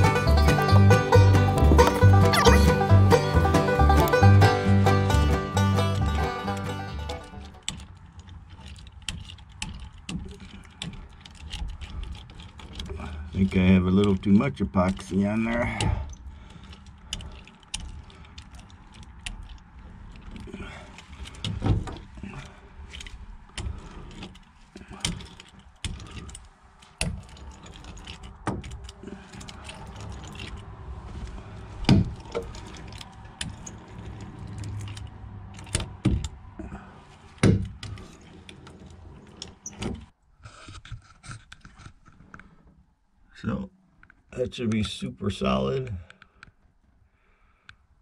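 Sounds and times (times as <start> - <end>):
sharp knocks: 37.4 - 37.8.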